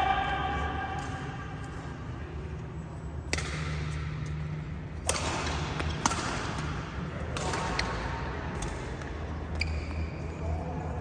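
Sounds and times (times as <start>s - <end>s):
low hall hum: 0.0s - 11.0s
rackets hitting shuttlecock: 3.2s - 9.7s.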